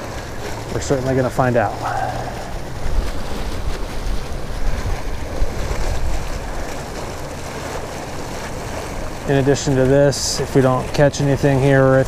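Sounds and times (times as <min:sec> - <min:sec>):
water running from pipe into river: 0:00.0 - 0:12.0
wind buffeting microphone: 0:01.5 - 0:09.8.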